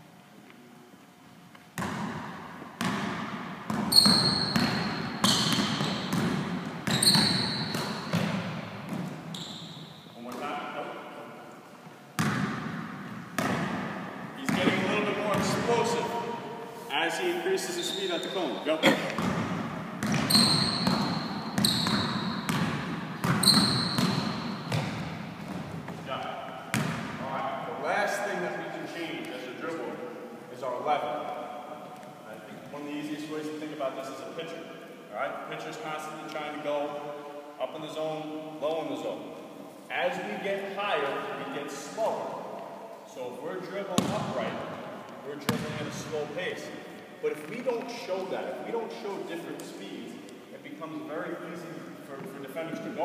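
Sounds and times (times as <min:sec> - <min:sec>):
basketball bouncing on gym floor: 0:01.8 - 0:09.5, 0:12.2 - 0:15.7, 0:19.1 - 0:27.2, 0:43.9 - 0:44.4, 0:45.4 - 0:46.0
sneaker squeaks: 0:02.8 - 0:10.4, 0:17.6 - 0:27.0
short high squeaks: 0:03.9 - 0:06.1, 0:06.9 - 0:08.1, 0:09.3 - 0:10.1, 0:20.2 - 0:22.5, 0:23.4 - 0:24.6.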